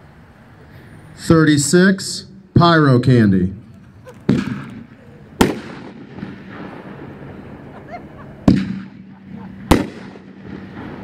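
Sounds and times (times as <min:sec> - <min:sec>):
firework bangs with echo: 0:04.3 - 0:07.7, 0:08.4 - 0:11.0.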